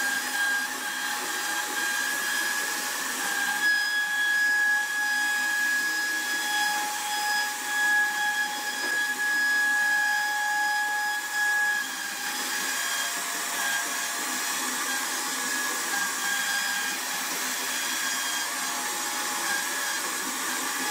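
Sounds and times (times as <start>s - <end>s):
cutter hissing through wood: 0.0s - 20.9s
router spindle whining: 0.0s - 20.9s.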